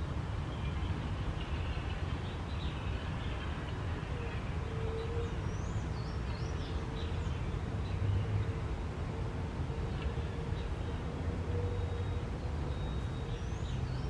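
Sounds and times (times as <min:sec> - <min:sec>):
faint steady hum: 0:00.0 - 0:14.0
small birds chirping: 0:00.2 - 0:08.5, 0:11.6 - 0:14.0.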